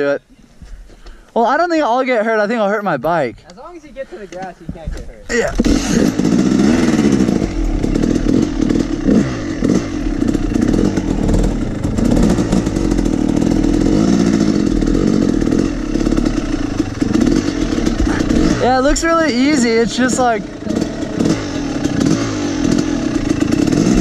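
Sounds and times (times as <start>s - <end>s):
dirt bike engine revving: 5.3s - 24.0s.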